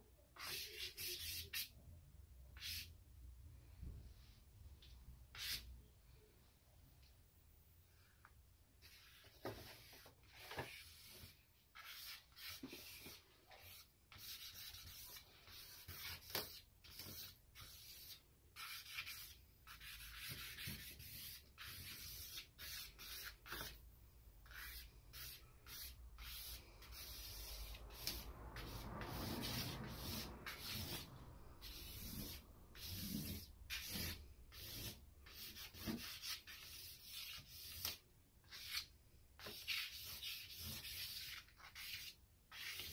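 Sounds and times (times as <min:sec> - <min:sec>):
charcoal scratching on paper: 0:00.4 - 0:01.7, 0:08.8 - 0:23.8, 0:24.4 - 0:42.9
charcoal rubbing on paper: 0:08.8 - 0:23.8, 0:24.4 - 0:42.9.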